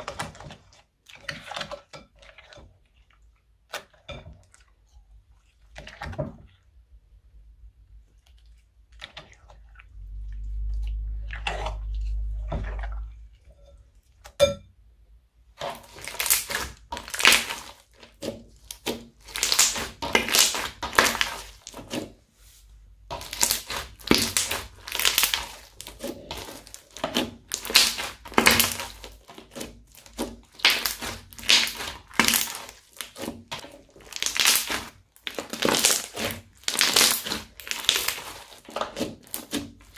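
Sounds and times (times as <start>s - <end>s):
low rumble: 9.9s - 13.5s
crunchy slime being squeezed: 15.6s - 22.0s, 23.1s - 39.9s.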